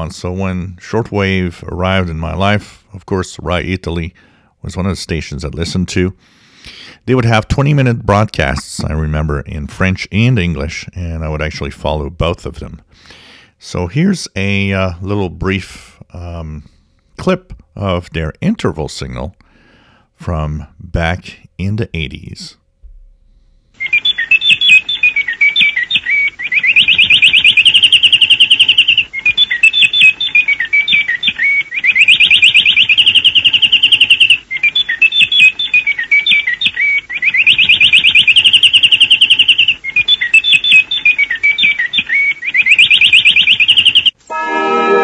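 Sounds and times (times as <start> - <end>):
warbling birdsong chirps: 23.8 - 44.2
held birdsong trill: 23.8 - 44.8.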